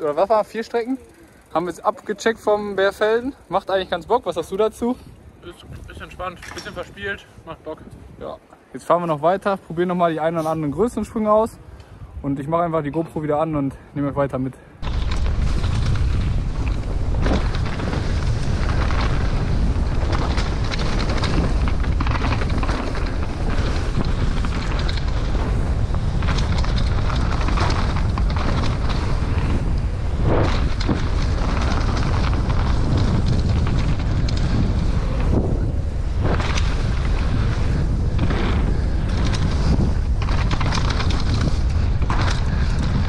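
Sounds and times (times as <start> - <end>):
wind rushing on microphone: 0.0 - 43.0
bike knocks and rattles: 14.8 - 43.0
tyre noise: 14.8 - 43.0.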